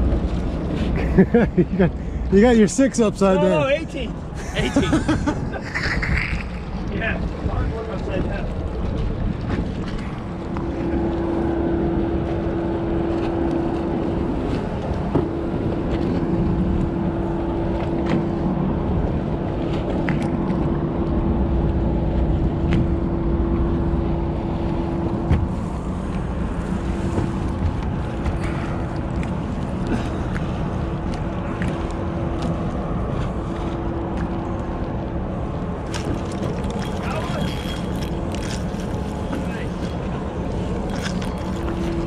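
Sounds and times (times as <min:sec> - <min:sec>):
boat motor humming: 0:00.0 - 0:42.0
water wash: 0:00.0 - 0:42.0
wind noise: 0:00.0 - 0:42.0.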